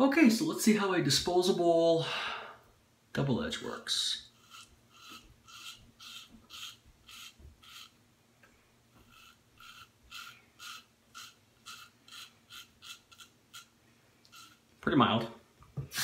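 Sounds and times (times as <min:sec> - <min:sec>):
razor scraping stubble: 0:04.2 - 0:08.0, 0:08.9 - 0:14.7.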